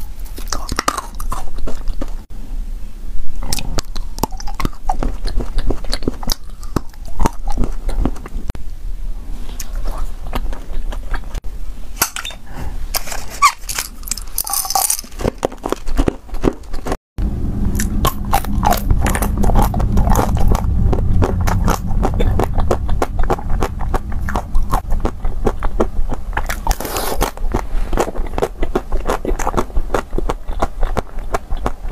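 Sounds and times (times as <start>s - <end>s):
chewing gummy candy: 0.0s - 2.3s, 3.4s - 8.5s, 9.6s - 11.4s, 13.0s - 17.0s, 18.1s - 31.9s
crunching chocolate shell: 13.6s - 16.9s.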